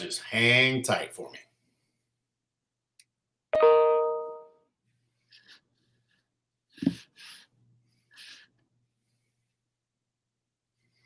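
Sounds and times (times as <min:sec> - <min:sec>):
bright chime ding: 0:03.6 - 0:04.5.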